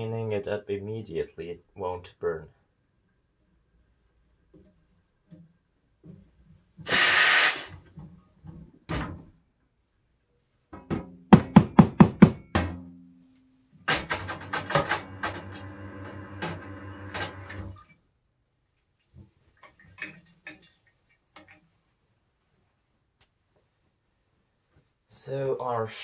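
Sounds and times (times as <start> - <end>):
steam wand hissing: 6.9 - 7.8.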